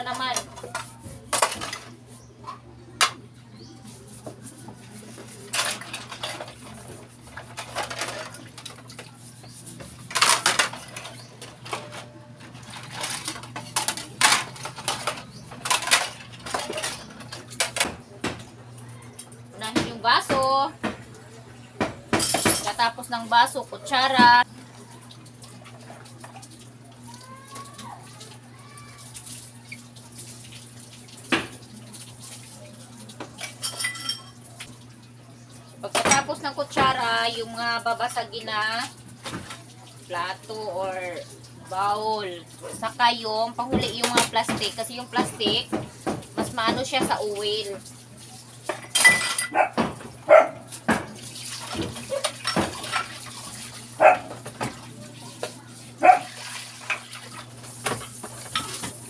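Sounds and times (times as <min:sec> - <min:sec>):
plastic dishes clattering: 0:00.0 - 0:02.0, 0:05.2 - 0:09.1, 0:10.0 - 0:18.5
running water: 0:22.5 - 0:59.0
spoons clinking: 0:33.5 - 0:34.4
dog barking: 0:49.5 - 0:50.7, 0:54.0 - 0:54.4, 0:56.0 - 0:56.4.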